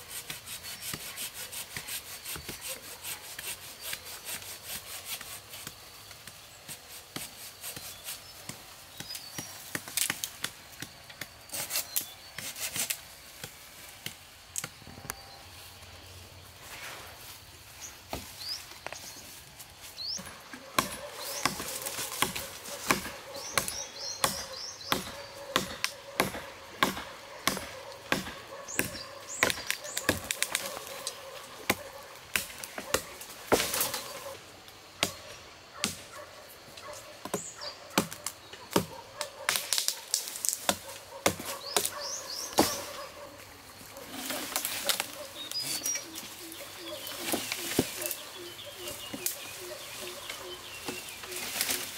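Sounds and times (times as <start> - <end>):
birds chirping: 17.4 - 40.0, 40.7 - 51.9
sharp chopping knocks: 20.8 - 30.2.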